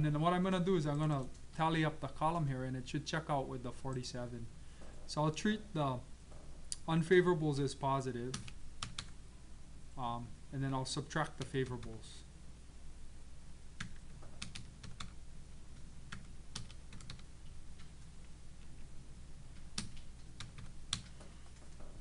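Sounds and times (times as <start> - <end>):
steady low hum: 0.0 - 22.0
computer keys clicking: 8.3 - 9.2, 13.8 - 15.2, 16.1 - 18.0, 19.5 - 21.8.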